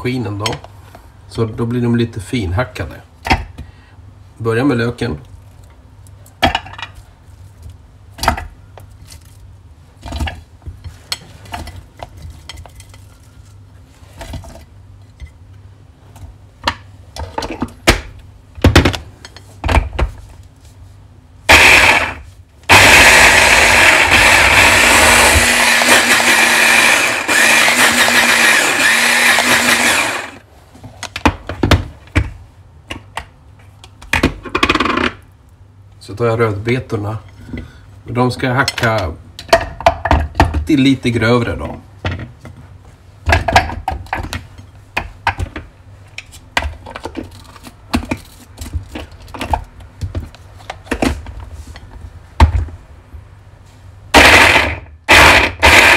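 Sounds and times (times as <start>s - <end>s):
hand blender chopping: 21.5s - 30.4s, 54.2s - 55.9s.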